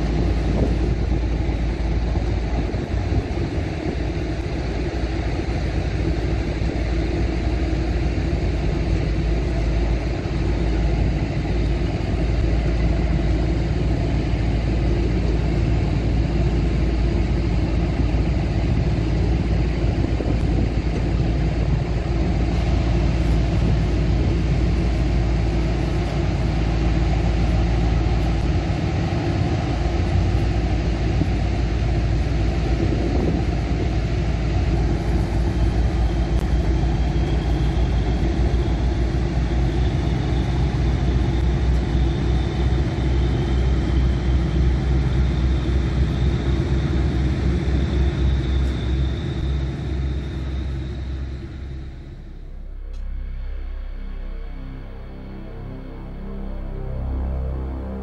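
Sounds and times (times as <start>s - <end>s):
boat diesel engines rumbling: 0.0s - 58.0s
high whine: 0.0s - 58.0s.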